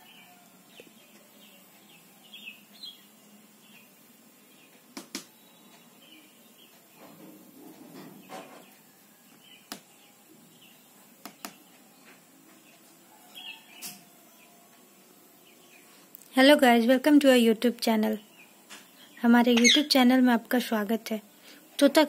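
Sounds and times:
parakeet chirping softly: 19.0s - 20.0s.

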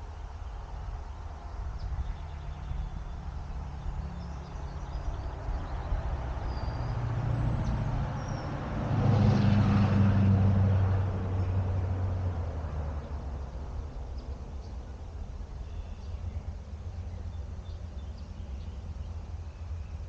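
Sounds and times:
vehicle engine passing: 2.7s - 14.7s.

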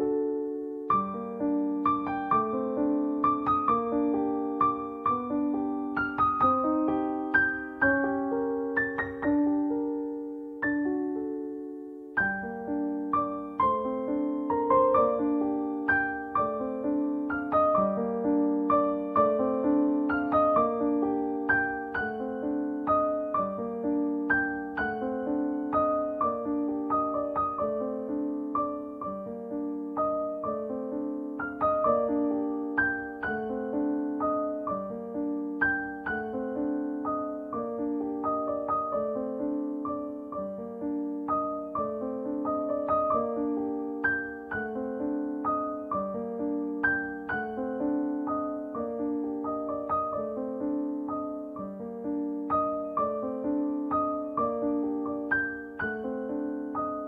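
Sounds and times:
gentle piano slow notes: 0.0s - 57.0s.

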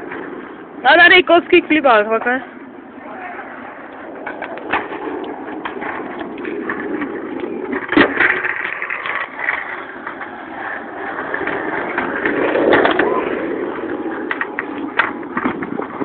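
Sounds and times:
skateboard wheels rolling on pavement: 0.0s - 16.0s
sharp skateboard clack: 3.3s - 16.0s.

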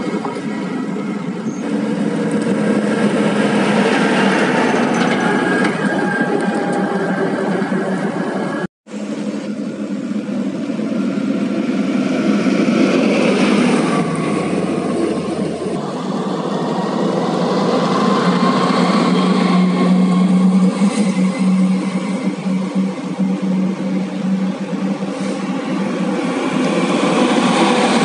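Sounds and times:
tyre and road noise: 0.0s - 8.3s
truck engine drone: 0.0s - 28.0s.

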